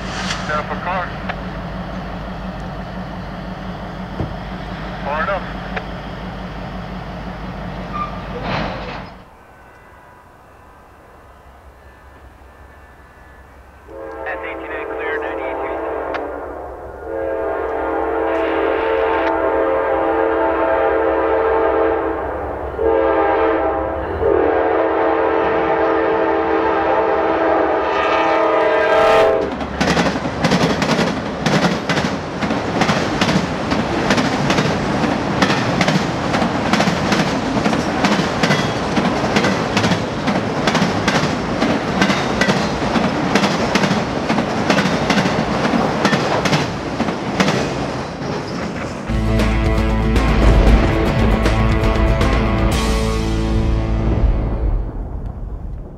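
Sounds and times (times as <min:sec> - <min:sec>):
locomotive horn blasts: 0:13.9 - 0:29.5
train wheels clickety-clack: 0:29.3 - 0:49.1.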